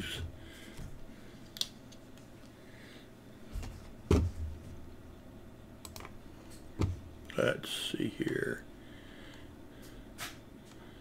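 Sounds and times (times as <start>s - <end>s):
computer mouse clicks: 5.8s - 6.6s.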